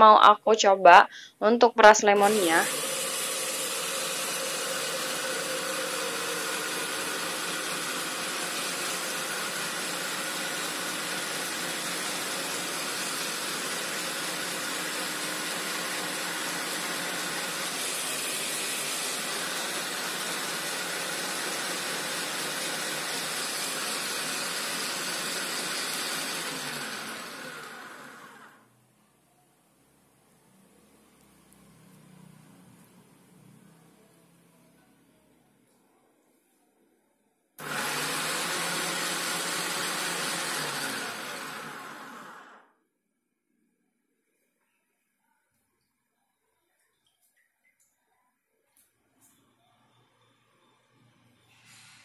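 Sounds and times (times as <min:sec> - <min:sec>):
food processor motor running: 0:02.2 - 0:28.7, 0:37.6 - 0:42.7.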